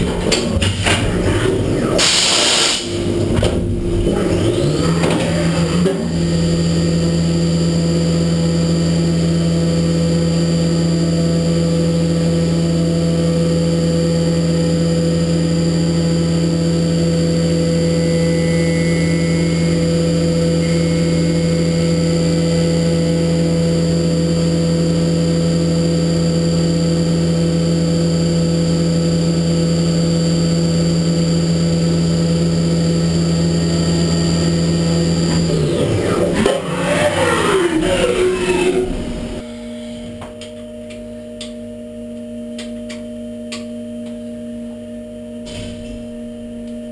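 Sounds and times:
cnc spindle humming: 2.8s - 45.4s
thin high whine: 14.5s - 42.1s.

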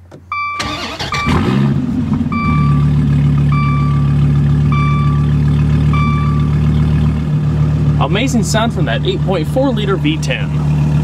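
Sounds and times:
car engine starting and idling: 0.0s - 11.0s
dashboard warning chime beeping: 0.2s - 1.5s, 2.3s - 6.7s.

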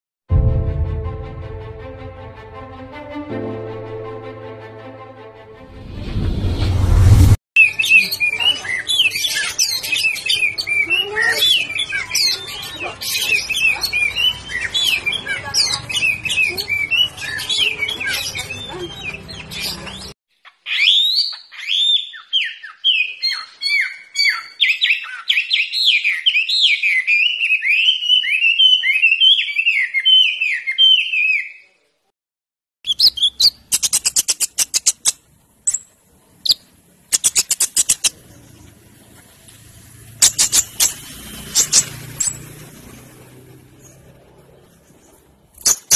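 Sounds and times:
songbird whistles and chirps: 7.6s - 31.8s, 32.9s - 35.1s
bird sharp clicks and trills: 32.9s - 38.2s, 40.1s - 42.9s, 45.6s - 45.9s.

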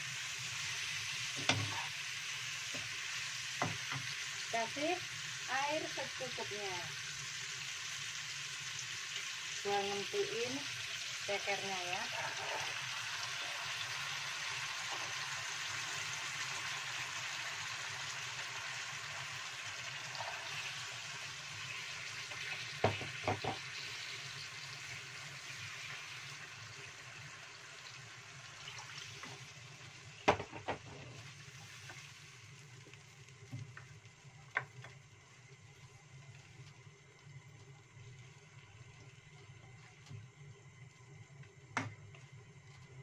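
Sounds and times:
wok sizzling: 0.0s - 40.8s
water poured into hot pan: 7.0s - 34.1s
spatula knocking on pan: 22.8s - 23.6s.

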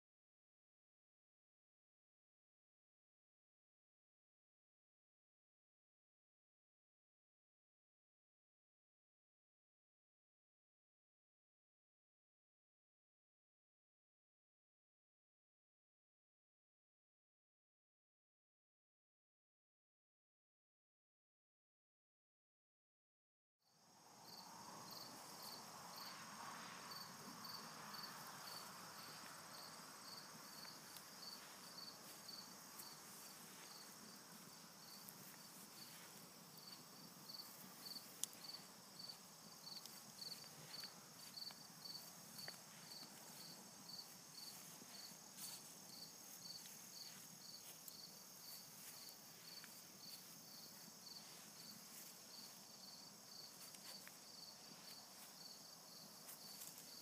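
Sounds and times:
crickets chirping: 23.7s - 57.0s
high insect trill: 23.8s - 57.0s.

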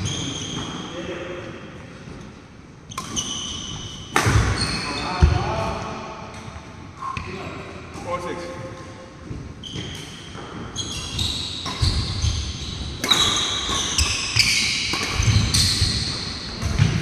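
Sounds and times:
shoes squeaking on court floor: 0.0s - 1.0s, 2.9s - 5.7s, 8.0s - 17.0s
rackets hitting shuttlecock: 2.9s - 6.6s, 9.7s - 17.0s.

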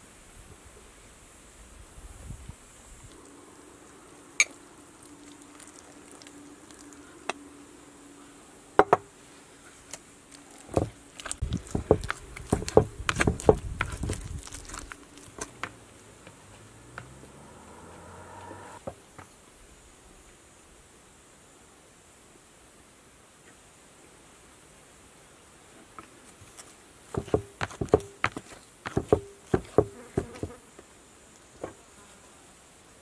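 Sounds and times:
utensil mixing mashed potatoes: 10.7s - 15.4s.

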